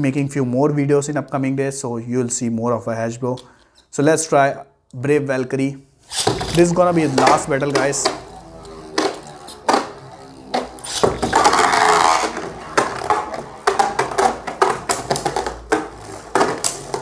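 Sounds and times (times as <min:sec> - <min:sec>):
spinning tops launching whir: 0:06.1 - 0:17.0.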